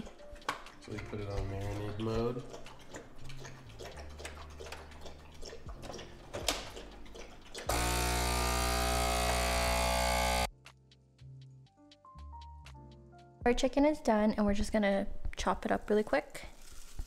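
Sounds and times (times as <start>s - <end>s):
vacuum sealer pump running: 7.7s - 10.5s.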